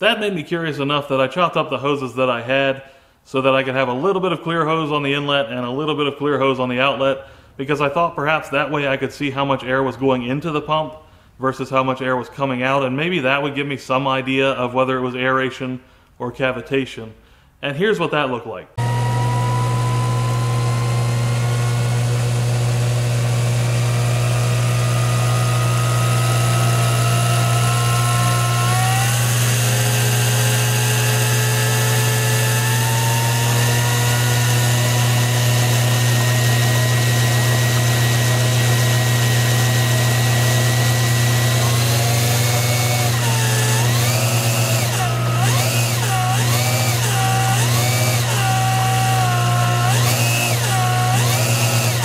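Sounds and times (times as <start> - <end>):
motor whine: 18.8 - 52.0.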